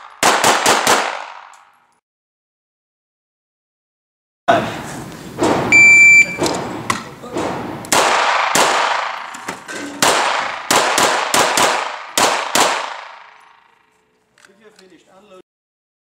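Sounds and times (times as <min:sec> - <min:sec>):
pistol shots ringing off walls: 0:00.0 - 0:01.9, 0:06.4 - 0:13.9
shot timer beep: 0:05.7 - 0:06.4.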